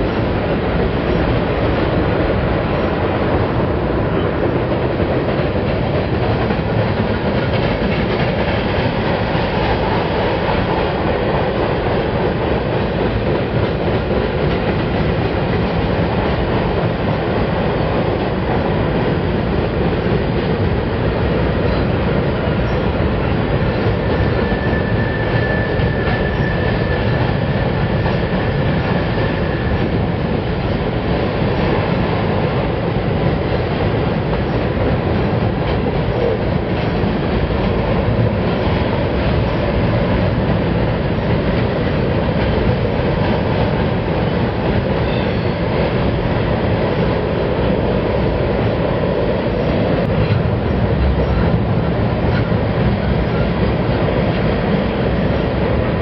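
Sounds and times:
freight train wheels rumbling: 0.0s - 56.0s
high wheel squeal: 23.9s - 28.3s.

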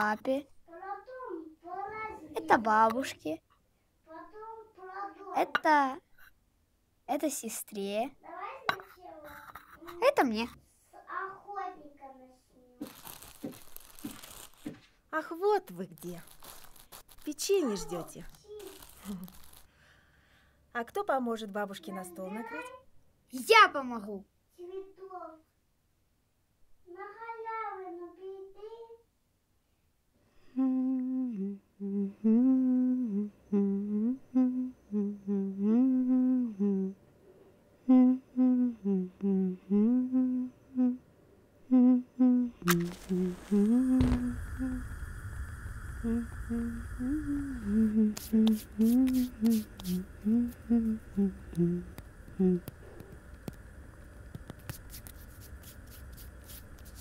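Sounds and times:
woman humming a slow tune: 30.4s - 37.0s, 37.8s - 45.0s, 46.0s - 53.1s
steady hiss: 42.6s - 57.0s.

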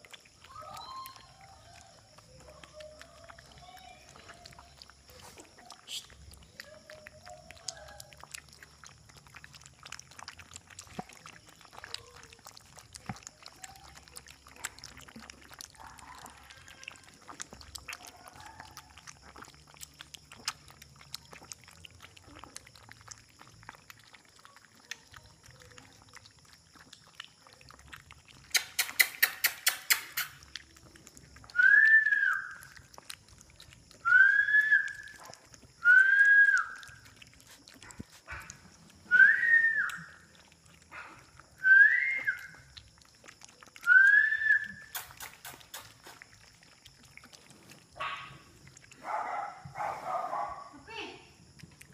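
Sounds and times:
puppies lapping: 0.0s - 51.9s
puppy whining: 0.4s - 8.2s, 28.5s - 33.1s, 43.3s - 46.8s
sharp clicks: 28.5s - 30.4s.

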